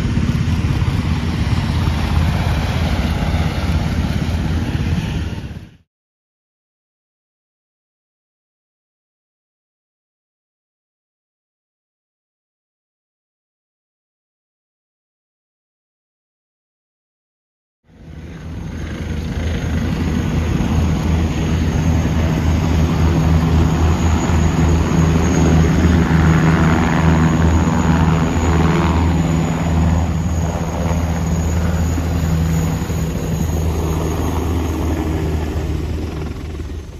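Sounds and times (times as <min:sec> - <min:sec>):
helicopters flying past: 0:00.0 - 0:05.8, 0:17.9 - 0:36.9.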